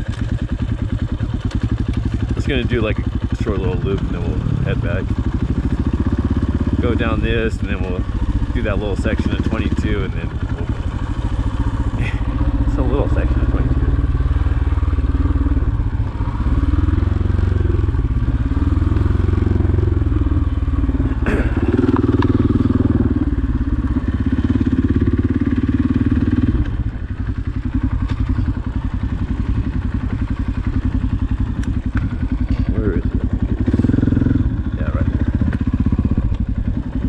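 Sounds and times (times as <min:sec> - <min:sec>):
dirt bike engine revving: 0:00.6 - 0:37.0.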